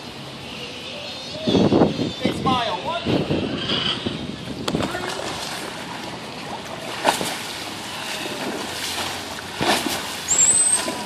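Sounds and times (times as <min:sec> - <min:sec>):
wind buffeting microphone: 0:01.3 - 0:11.0
water splashing: 0:04.5 - 0:11.0.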